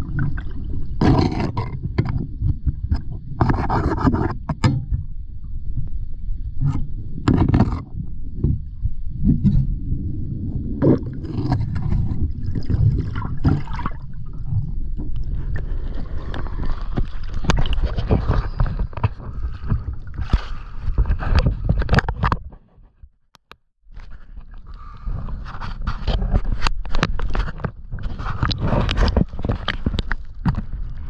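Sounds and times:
muffled underwater water gurgling: 0.0 - 22.3.

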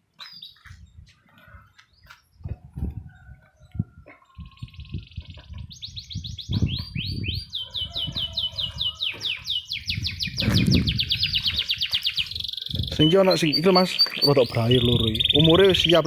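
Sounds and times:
canary singing trills: 4.2 - 16.0.

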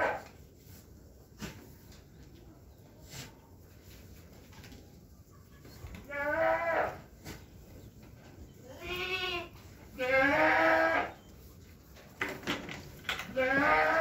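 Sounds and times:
goat bleating: 6.0 - 7.1, 8.6 - 11.2, 13.2 - 14.0.

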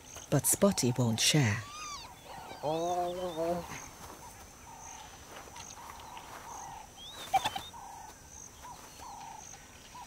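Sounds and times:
high bird chirps: 0.2 - 9.4
sharp loud bird call: 1.4 - 3.8, 7.0 - 7.8
bird repeating short call: 1.6 - 3.8, 7.0 - 7.8.

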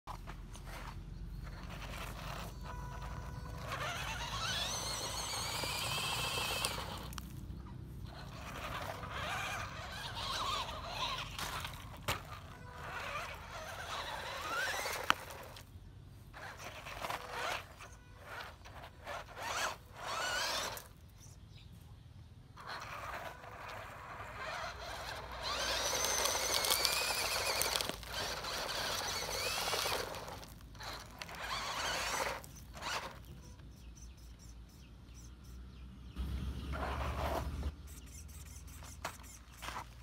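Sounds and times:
tyres scraping through gravel: 0.0 - 21.9, 22.5 - 33.9, 36.1 - 40.0
electric motor whining: 0.6 - 7.3, 8.0 - 15.7, 16.3 - 21.0, 22.6 - 34.5.

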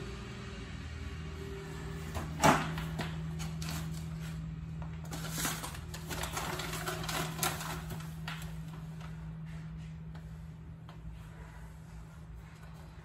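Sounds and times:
steady low hum: 0.0 - 13.0
paper and packaging rustling: 2.1 - 9.2.

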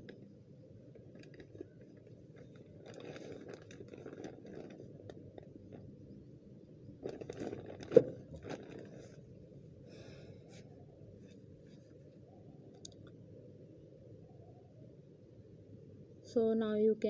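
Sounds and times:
low steady background noise: 0.0 - 17.0
plastic packet crinkling: 1.0 - 5.9, 7.0 - 9.2.

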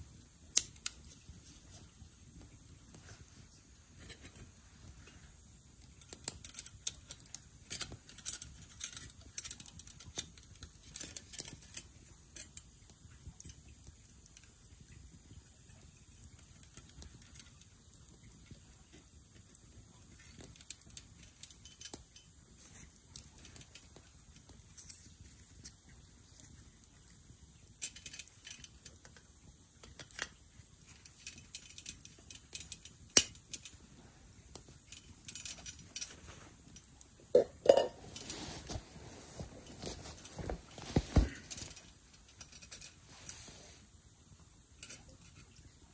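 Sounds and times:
camp cookware clinking: 34.5 - 38.8.

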